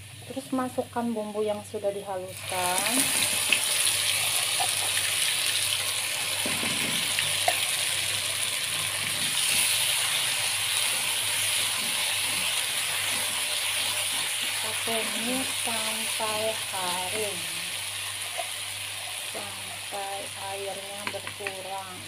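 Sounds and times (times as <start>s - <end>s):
spice paste sizzling in oil: 1.6s - 22.0s
spatula tapping wok: 21.0s - 21.6s.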